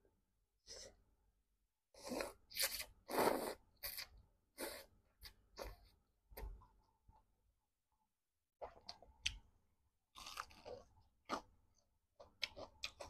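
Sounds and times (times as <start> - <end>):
person slurping noodles: 2.0 - 4.9.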